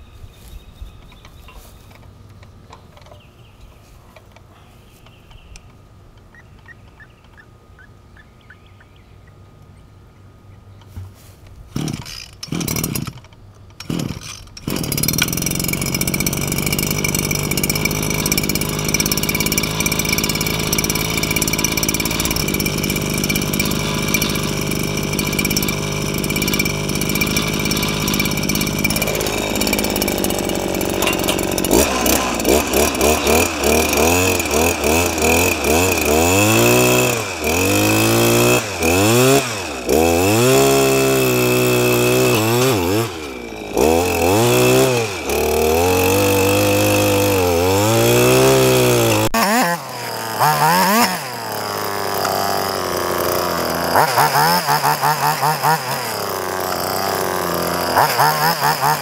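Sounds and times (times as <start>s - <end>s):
two-stroke engine idling and revving: 11.8s - 13.2s, 13.8s - 59.0s.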